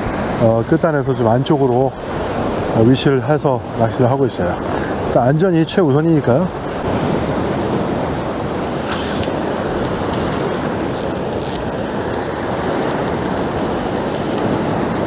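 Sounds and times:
ocean surf breaking on rock: 0:00.0 - 0:15.0
high hissing bursts: 0:08.8 - 0:11.6.

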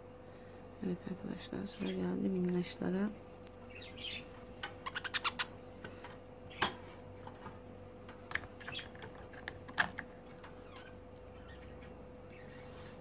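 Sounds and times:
faint steady hum: 0:00.0 - 0:13.0
birdcage door clicking and rattling: 0:08.3 - 0:10.9.

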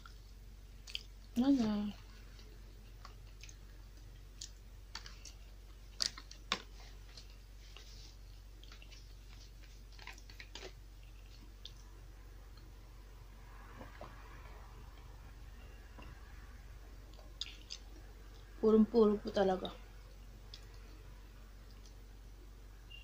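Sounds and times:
person chewing: 0:00.0 - 0:01.3, 0:02.4 - 0:07.4, 0:08.1 - 0:11.9, 0:17.1 - 0:18.5.

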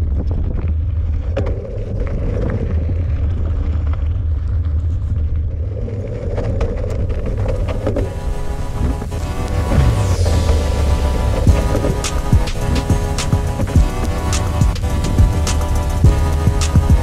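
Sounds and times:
bike tyres rumbling on rocks: 0:00.0 - 0:08.1
stones clicking and bike rattling: 0:00.0 - 0:08.1
wind on microphone: 0:00.0 - 0:17.0.

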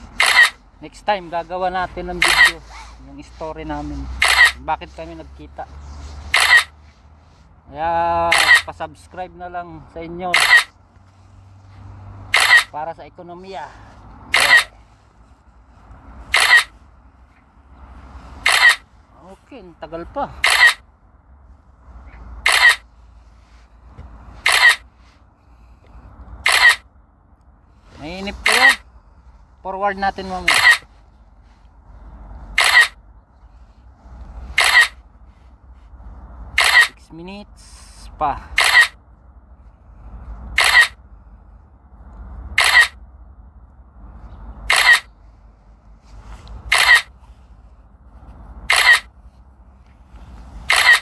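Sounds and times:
camera shutter clicks: 0:00.2 - 0:00.6, 0:02.2 - 0:02.5, 0:04.2 - 0:04.6, 0:06.3 - 0:06.7, 0:08.3 - 0:08.7, 0:10.3 - 0:10.7, 0:12.3 - 0:12.7, 0:14.3 - 0:14.7, 0:16.3 - 0:16.7, 0:18.4 - 0:18.8, 0:20.4 - 0:20.8, 0:22.4 - 0:22.8, 0:24.4 - 0:24.8, 0:26.4 - 0:26.8, 0:30.5 - 0:30.8, 0:32.6 - 0:33.0, 0:34.6 - 0:35.0, 0:36.6 - 0:37.0, 0:38.6 - 0:39.0, 0:40.5 - 0:41.0, 0:42.6 - 0:43.0, 0:44.7 - 0:45.1, 0:46.7 - 0:47.1, 0:48.7 - 0:49.1, 0:50.7 - 0:51.0.

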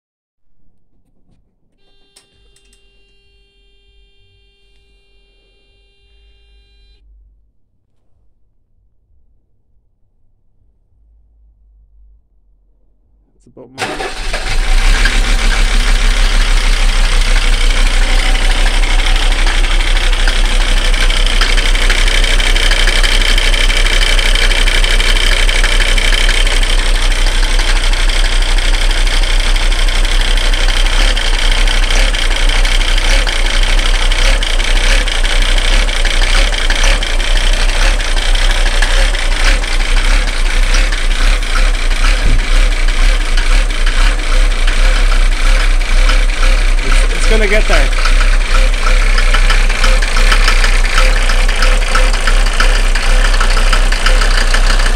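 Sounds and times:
diesel engine idling: 0:13.4 - 0:54.9.

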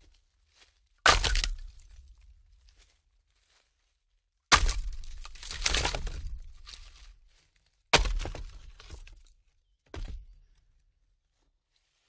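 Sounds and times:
logs crashing: 0:01.0 - 0:02.0, 0:04.5 - 0:06.9, 0:07.9 - 0:09.2.

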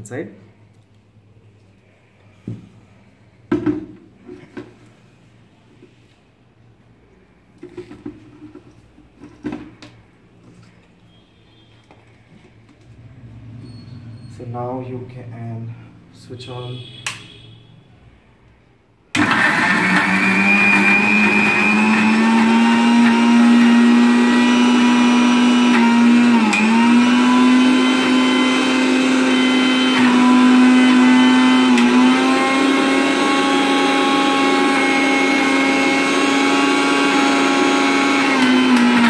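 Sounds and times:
mixer grinder motor running: 0:19.2 - 0:39.0.

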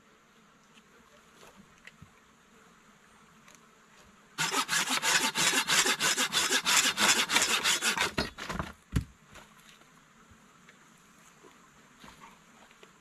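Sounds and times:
hand saw cutting wood: 0:04.4 - 0:08.6.

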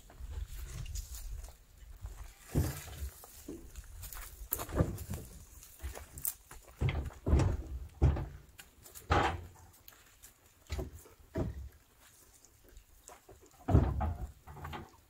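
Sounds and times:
firewood logs knocking: 0:02.5 - 0:09.8, 0:10.6 - 0:11.8, 0:13.4 - 0:15.0.

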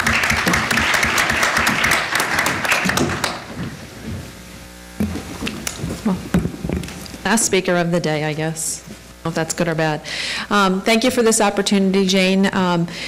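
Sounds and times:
audience applauding: 0:00.0 - 0:03.5
faint steady hum: 0:00.0 - 0:13.0.

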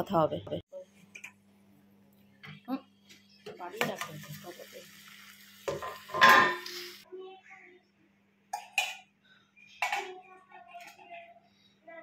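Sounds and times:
metal pots and utensils clinking: 0:03.4 - 0:04.8, 0:05.6 - 0:07.0, 0:08.5 - 0:09.1, 0:09.8 - 0:10.2.

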